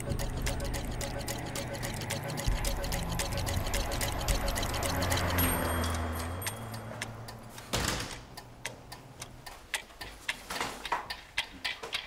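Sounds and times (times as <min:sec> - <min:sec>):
low hum: 0:00.0 - 0:07.2
steady ticking clicks: 0:00.0 - 0:12.0.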